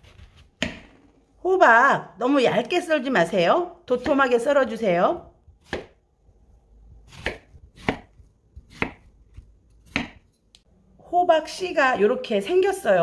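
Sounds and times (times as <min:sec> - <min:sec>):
knife chopping on wooden board: 0:05.6 - 0:06.0, 0:07.0 - 0:10.3.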